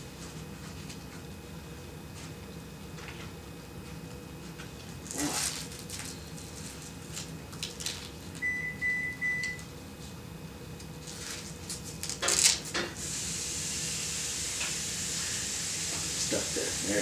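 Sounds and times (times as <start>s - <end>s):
steady hiss: 13.0s - 17.0s.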